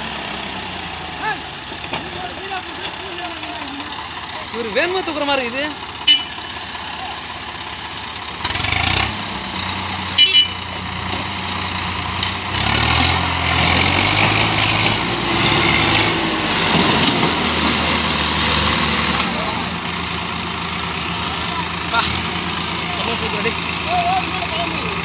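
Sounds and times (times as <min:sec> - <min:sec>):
diesel tractor engines under load: 0:00.0 - 0:25.0.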